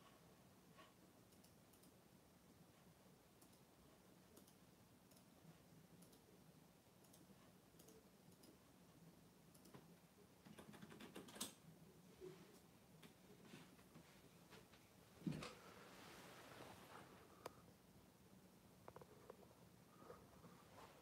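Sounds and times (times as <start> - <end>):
faint clicks: 1.3 - 2.0, 4.3 - 5.4, 6.0 - 6.3, 7.0 - 8.6, 9.5 - 11.6.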